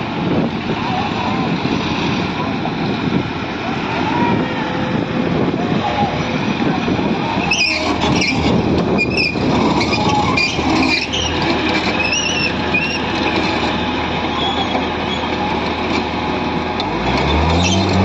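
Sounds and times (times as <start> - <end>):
excavator diesel engine: 0.0 - 18.0
rattling mechanical din: 4.9 - 16.2
high squeaks: 7.4 - 15.4, 17.2 - 18.0.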